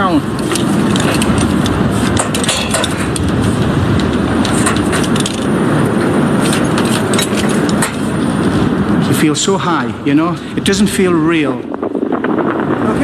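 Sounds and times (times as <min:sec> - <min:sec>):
wind buffeting microphone: 0:00.0 - 0:13.0
crackles and clicks: 0:00.2 - 0:09.1.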